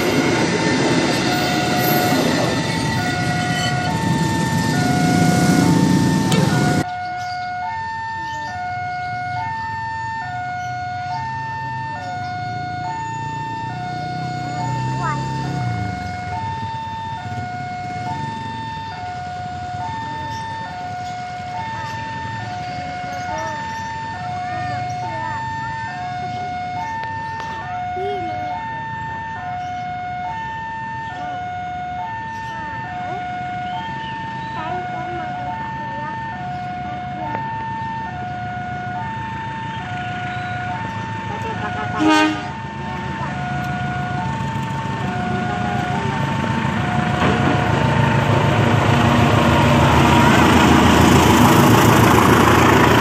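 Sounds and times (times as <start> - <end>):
locomotive horn blast: 0.0 - 6.8, 41.3 - 42.7
level crossing two-tone alarm: 0.0 - 53.0.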